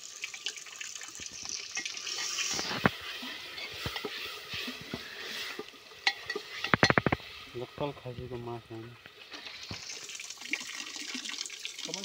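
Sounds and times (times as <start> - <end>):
water poured into metal pot: 0.0 - 12.0
metal ladle clinking on pot: 6.0 - 7.1.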